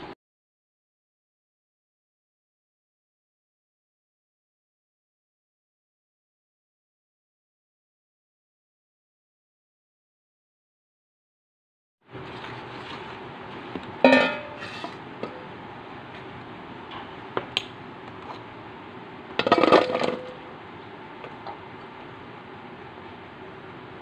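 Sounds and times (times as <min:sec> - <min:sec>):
steel bowl clanking: 0:14.0 - 0:15.0.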